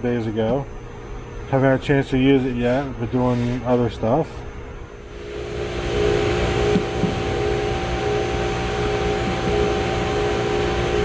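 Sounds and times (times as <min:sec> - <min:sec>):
multi-tone hum: 0:00.0 - 0:11.0
machinery hiss: 0:02.5 - 0:03.9, 0:05.1 - 0:11.0.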